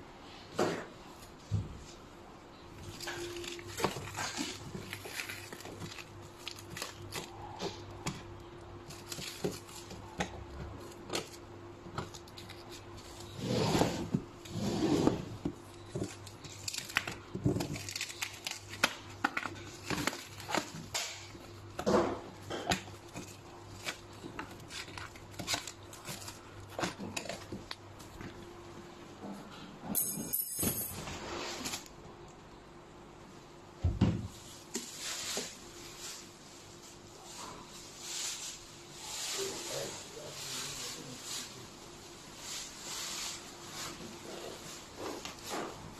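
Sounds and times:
plastic wrap crinkling and tearing: 0:02.8 - 0:13.4, 0:15.5 - 0:28.4.

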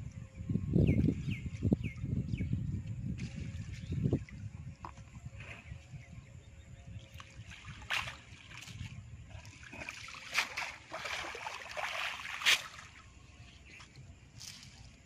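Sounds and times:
water splashing and dripping: 0:07.1 - 0:13.1.

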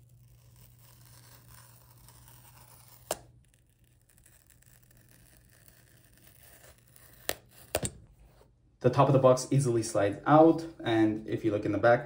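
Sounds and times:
paper tab tearing off cardboard: 0:00.0 - 0:08.0.

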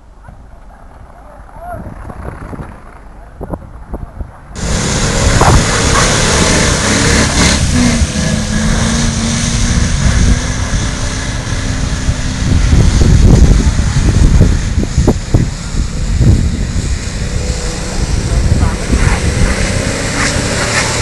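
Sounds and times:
wind noise on microphone: 0:00.0 - 0:21.0
car engine running hard: 0:04.5 - 0:21.0.

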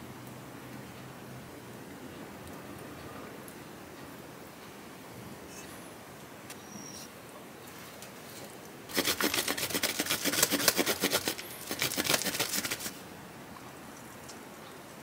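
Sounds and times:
cheese grated on metal grater: 0:08.9 - 0:13.0.

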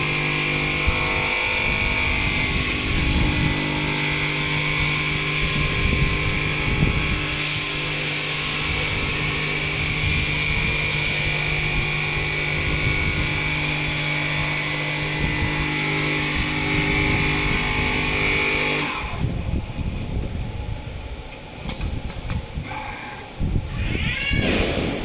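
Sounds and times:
quilting machine whining: 0:00.0 - 0:19.9, 0:22.6 - 0:23.4.

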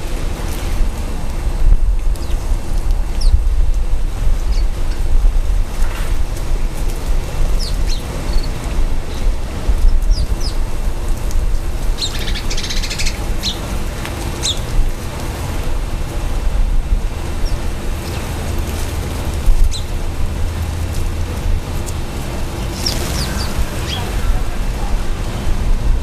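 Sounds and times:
small birds chirping: 0:02.1 - 0:03.5, 0:04.4 - 0:05.2, 0:07.0 - 0:14.8, 0:17.2 - 0:20.0, 0:21.8 - 0:25.1.

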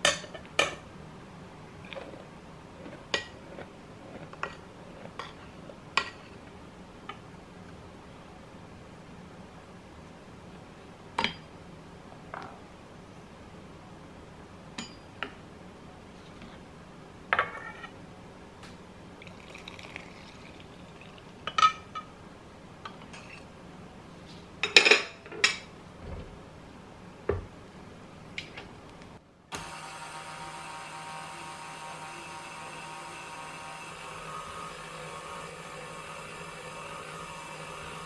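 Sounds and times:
stand mixer motor whirring: 0:29.6 - 0:38.0.

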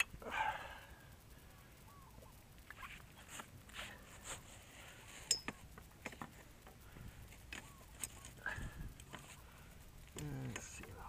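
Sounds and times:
sharp metallic clink: 0:05.3 - 0:05.6.

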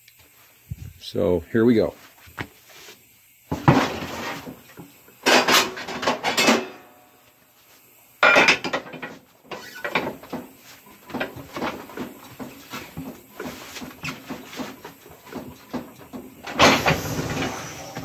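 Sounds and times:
metal tire bar laid down: 0:05.2 - 0:07.0, 0:08.2 - 0:10.6
tire rubbing and knocking: 0:09.6 - 0:18.0.

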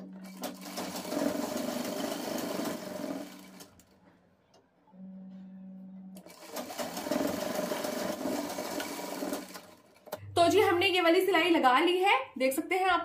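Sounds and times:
sewing machine stitching: 0:00.0 - 0:03.8, 0:06.2 - 0:10.2
steady low hum: 0:04.4 - 0:06.2.

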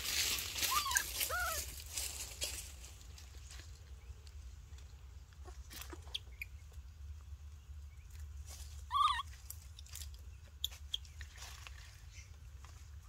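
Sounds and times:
dry leaves rustling: 0:00.0 - 0:04.8, 0:08.4 - 0:13.0
baby monkey squeaking: 0:00.7 - 0:01.6, 0:08.8 - 0:09.4.

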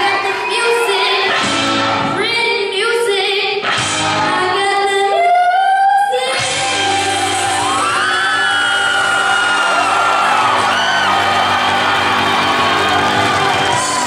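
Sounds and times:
girl singing into microphone: 0:00.0 - 0:07.9.

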